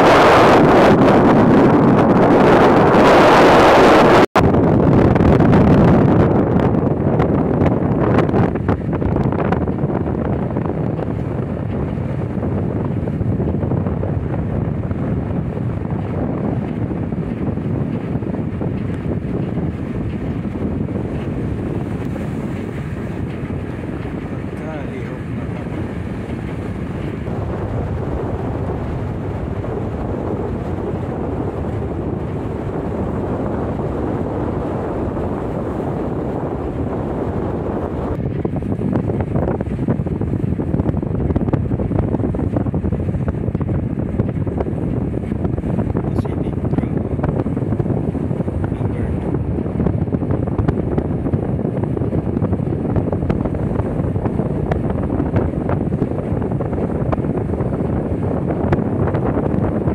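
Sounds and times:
choppy water washing: 0.0s - 59.9s
wind buffeting microphone: 0.0s - 59.9s.

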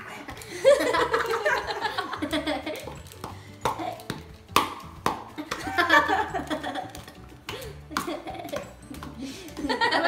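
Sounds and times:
people laughing: 0.4s - 2.9s, 5.4s - 10.0s.

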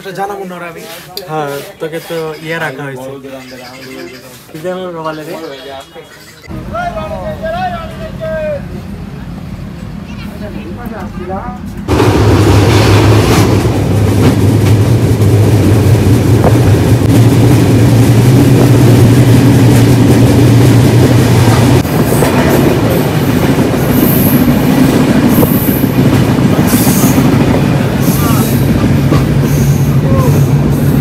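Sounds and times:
train carriage rumbling on rails: 6.4s - 31.0s.

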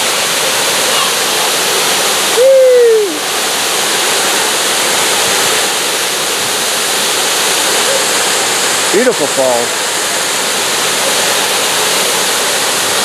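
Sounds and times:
waterfall roaring: 0.0s - 13.0s.

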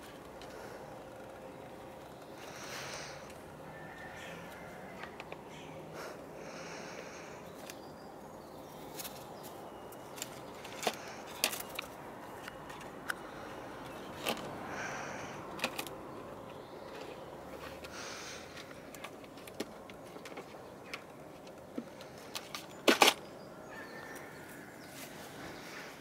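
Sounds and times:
claws tapping and scratching: 8.8s - 23.2s.

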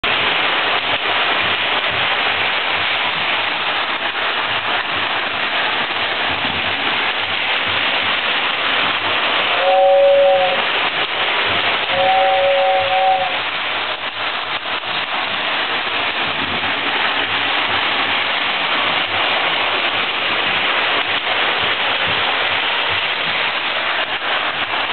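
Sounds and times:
two-tone train whistle: 9.5s - 10.7s, 11.9s - 13.4s.

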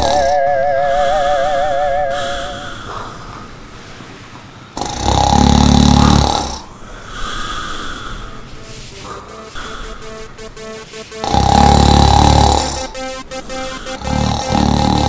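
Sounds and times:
man snoring: 4.8s - 6.6s.

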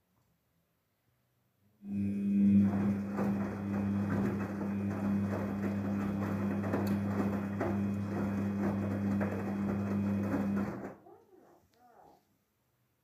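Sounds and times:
laundry tumbling and water sloshing: 1.9s - 11.0s
washing machine drum humming: 1.9s - 11.0s.

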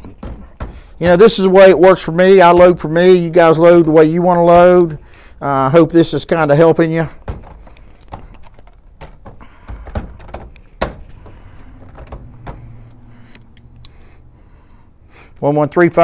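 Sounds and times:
light clicks and knocks of handling: 7.1s - 14.0s.

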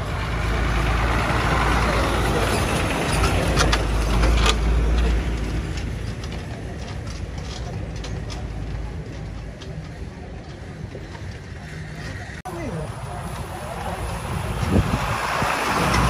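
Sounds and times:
diesel truck engine passing by: 0.0s - 6.8s, 11.9s - 16.0s.

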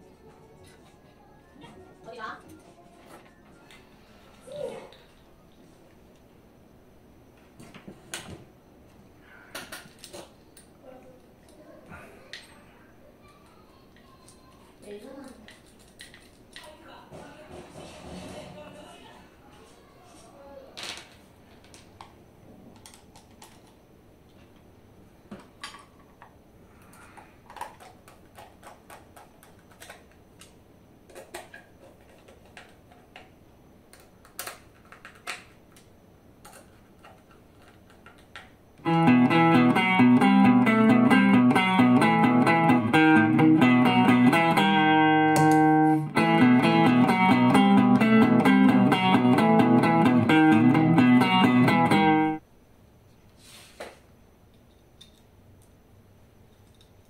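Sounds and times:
distorted electric guitar: 38.8s - 52.4s.

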